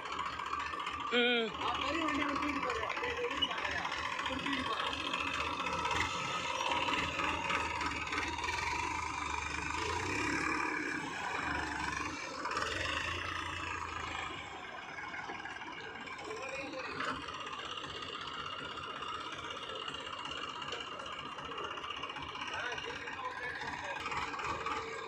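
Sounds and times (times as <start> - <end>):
diesel engines running: 0.0 - 25.0
machinery rattling: 0.0 - 25.0.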